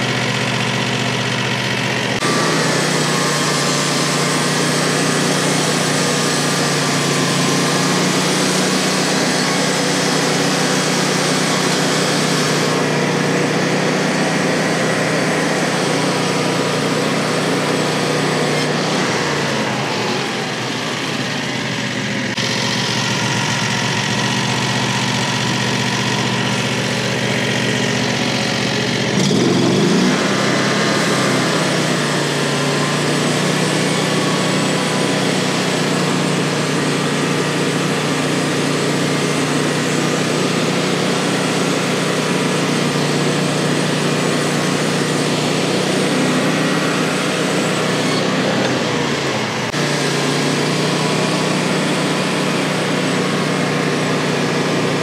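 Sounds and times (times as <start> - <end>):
sawmill gasoline engine running: 0.0 - 55.0.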